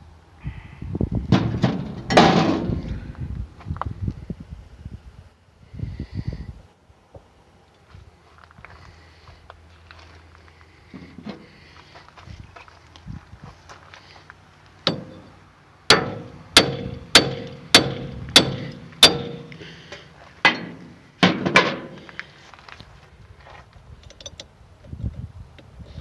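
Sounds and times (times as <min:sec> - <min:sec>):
sledge hammer striking metal: 0:14.9 - 0:19.7, 0:20.4 - 0:22.0.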